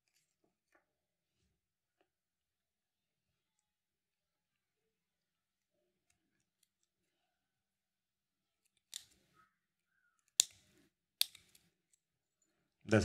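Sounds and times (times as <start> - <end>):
sharp metal clicks: 10.2 - 11.7.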